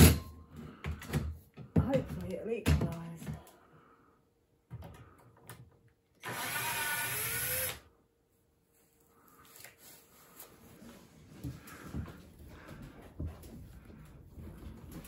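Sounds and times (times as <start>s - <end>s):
cordless drill driving screw: 6.2s - 7.8s.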